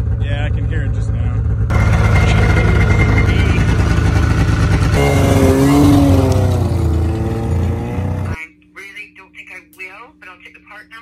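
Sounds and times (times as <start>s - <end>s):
snowmobile engine running: 0.4s - 8.4s.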